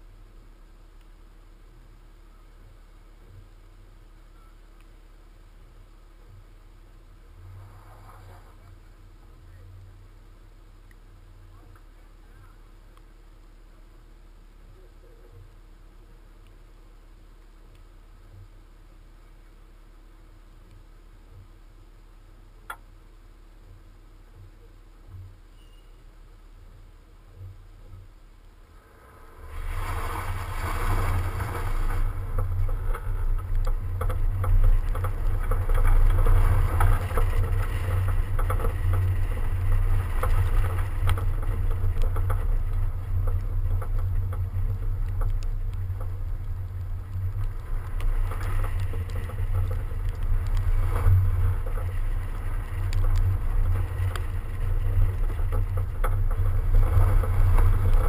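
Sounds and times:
car tyre and road noise: 0:00.0 - 0:58.0
wind buffeting microphone: 0:28.8 - 0:58.0.

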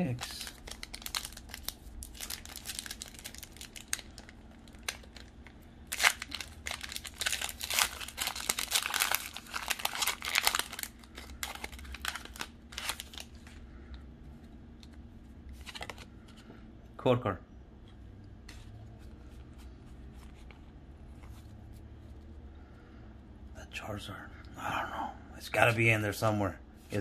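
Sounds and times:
foil wrapper crinkling and tearing: 0:00.0 - 0:13.6.

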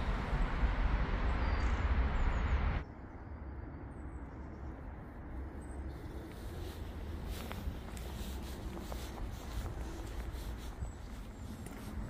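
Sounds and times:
low rumble with hiss: 0:00.0 - 0:03.8.

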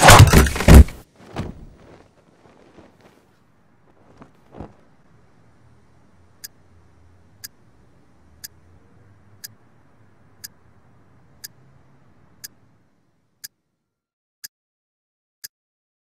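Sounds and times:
faint low hum: 0:01.4 - 0:13.9
clock ticking: 0:06.3 - 0:08.7, 0:09.3 - 0:09.7, 0:10.3 - 0:10.7, 0:11.4 - 0:11.6, 0:12.3 - 0:12.7.

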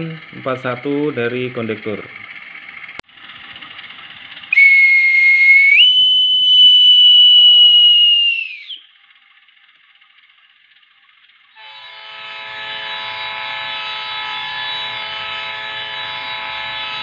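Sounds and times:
shrill whistle: 0:04.5 - 0:09.0.

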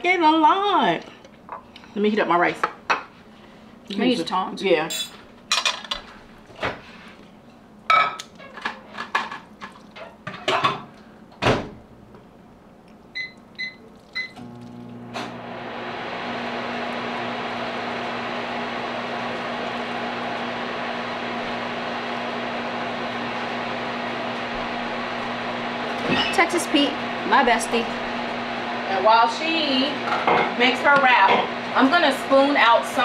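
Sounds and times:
kitchenware clinking: 0:04.9 - 0:06.1
microwave oven humming: 0:10.2 - 0:33.0
microwave keypad beeps: 0:13.2 - 0:14.4.

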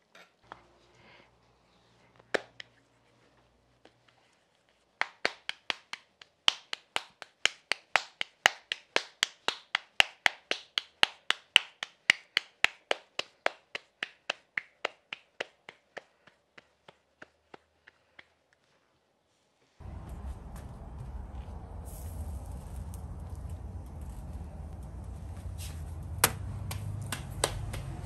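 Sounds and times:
hands slapping tortilla dough: 0:03.8 - 0:18.8, 0:25.3 - 0:28.0.

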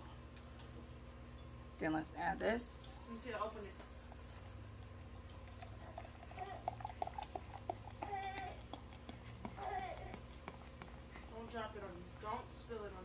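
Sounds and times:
beer glugging from a bottle: 0:05.3 - 0:11.0.

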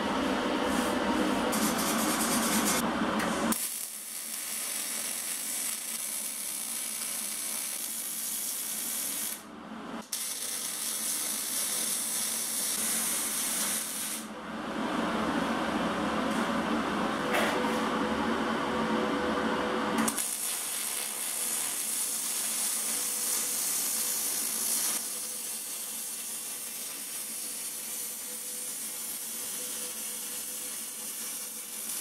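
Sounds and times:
welding arc crackling and hissing: 0:01.5 - 0:02.8, 0:03.5 - 0:09.4, 0:10.0 - 0:14.3, 0:20.0 - 0:32.0.

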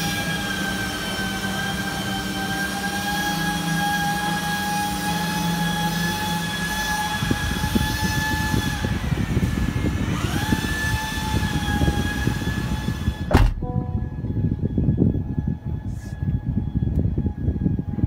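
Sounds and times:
high-pitched mechanical whine: 0:00.0 - 0:18.0
low rumble: 0:13.3 - 0:16.6.

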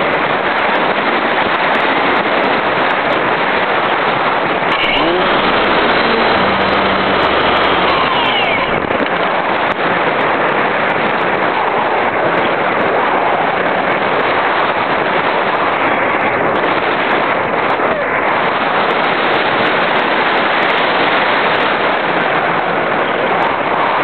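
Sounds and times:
wind rushing over microphone: 0:00.0 - 0:24.0
faint whines: 0:04.6 - 0:09.9.

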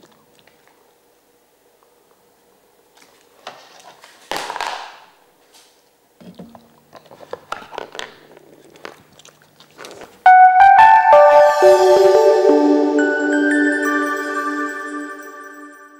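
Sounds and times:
dog chewing: 0:06.5 - 0:10.2.

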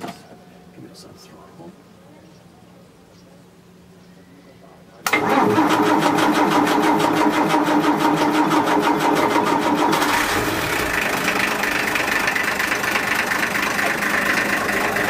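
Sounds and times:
diesel engine running: 0:05.1 - 0:15.0.

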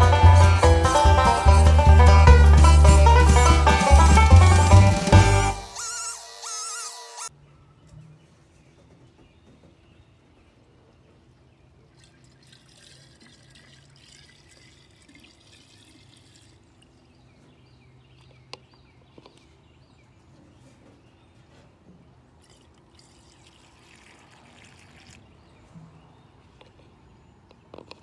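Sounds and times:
fuel trickling through funnel: 0:11.8 - 0:17.4, 0:22.3 - 0:25.5.

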